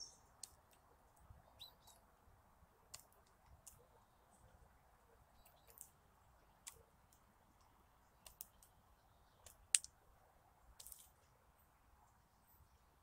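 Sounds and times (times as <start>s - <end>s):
bird beak tapping seeds and wood: 5.4s - 10.0s, 10.8s - 11.3s.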